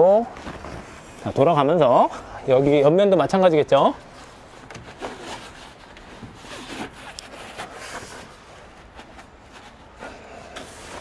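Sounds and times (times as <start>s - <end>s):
tent fabric rubbing and rustling: 0.0s - 2.1s.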